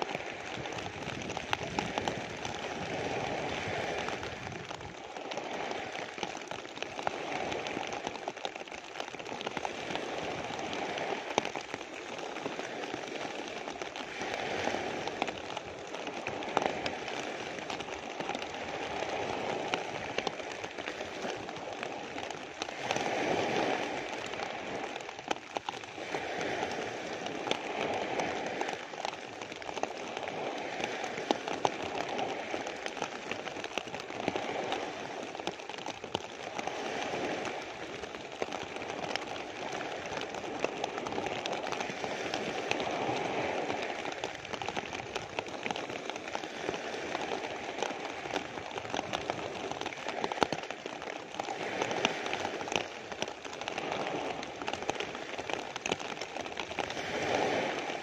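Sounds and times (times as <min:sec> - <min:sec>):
rain on plastic sheet: 0:00.0 - 0:58.0
waves breaking on pebbles: 0:00.0 - 0:58.0.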